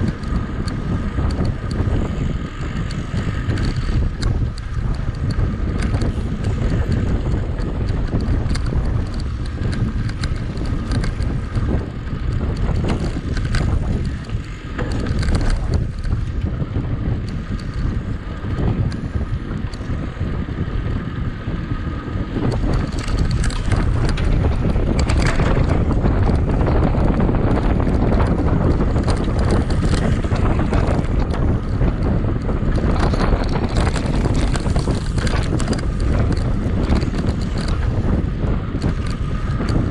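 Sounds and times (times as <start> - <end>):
bike knocking and rattling: 0.0 - 39.9
wind buffeting microphone: 0.0 - 39.9.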